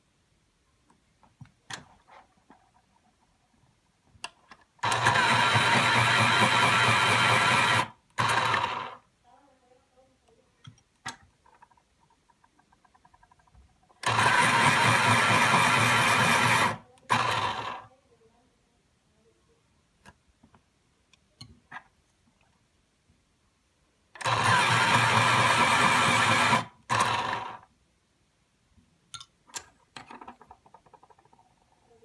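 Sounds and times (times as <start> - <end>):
electric pencil sharpener grinding: 4.8 - 9.0, 14.0 - 17.8, 24.2 - 27.7.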